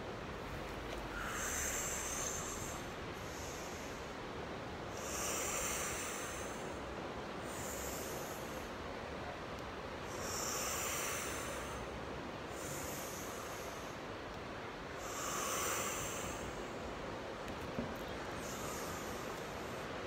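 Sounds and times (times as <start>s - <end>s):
steady background noise: 0.0s - 20.0s
deep breathing: 1.0s - 8.8s, 10.0s - 14.1s, 15.0s - 16.9s, 18.3s - 20.0s.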